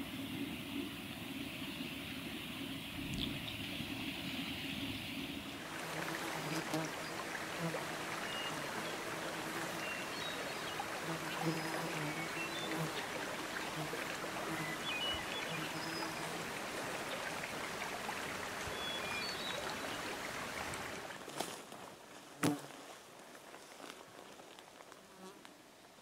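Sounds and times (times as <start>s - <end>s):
rushing water: 0.0s - 24.9s
insect buzzing: 5.6s - 16.5s, 22.4s - 22.8s.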